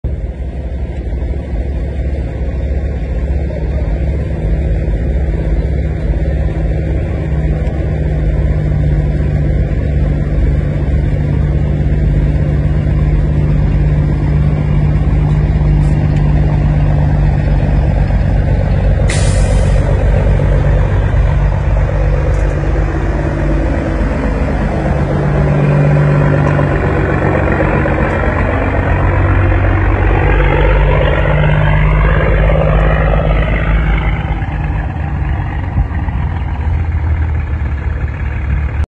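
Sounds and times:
truck diesel engine: 0.0 - 38.9
air brake hiss: 19.1 - 20.0.

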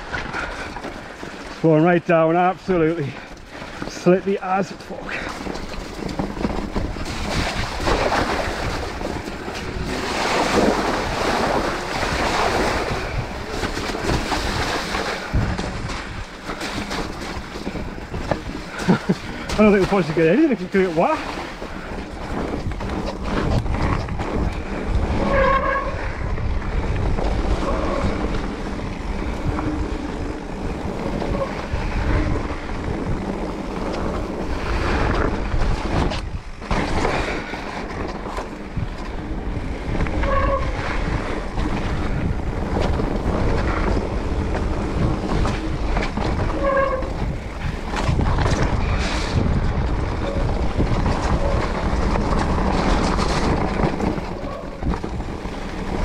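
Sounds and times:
bike knocking and rattling: 0.0 - 56.0
bike tyres rumbling on gravel: 0.0 - 56.0
wind buffeting microphone: 0.0 - 56.0.

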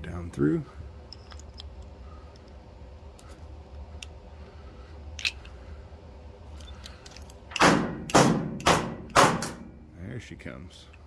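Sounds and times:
loud knock on metal part: 7.6 - 9.7.

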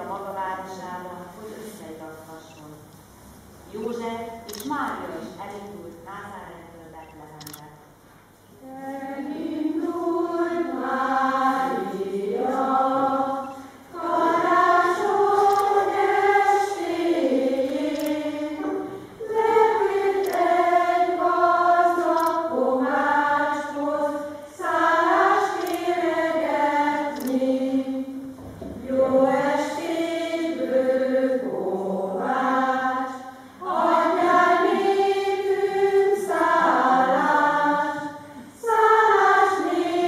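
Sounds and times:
choir of women and girls singing: 8.6 - 40.0.

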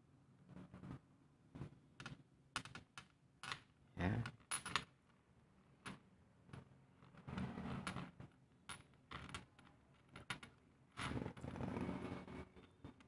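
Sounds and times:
metal parts scraping and rattling: 7.0 - 13.0.

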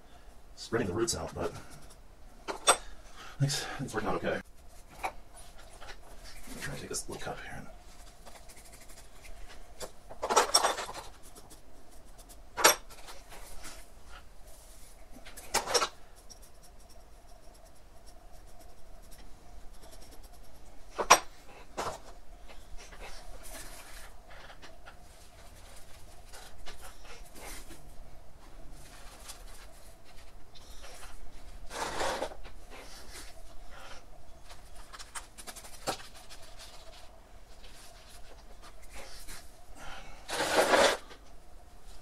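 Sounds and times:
gritty soil scraped by hand: 31.7 - 32.4, 40.3 - 41.1.

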